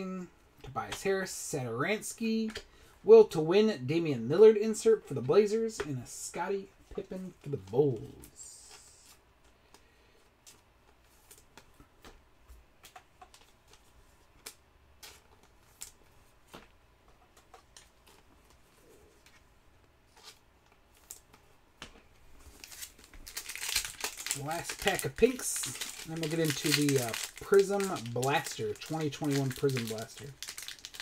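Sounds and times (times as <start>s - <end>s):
trading cards being flipped: 20.1s - 31.0s.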